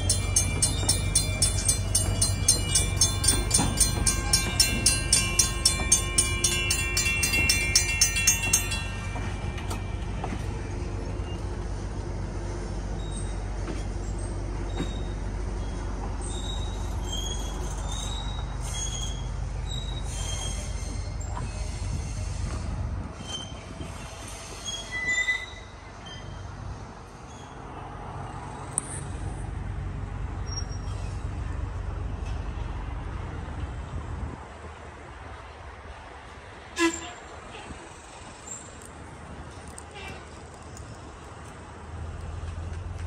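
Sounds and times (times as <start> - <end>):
railroad crossing bell ringing: 0.0 - 12.0.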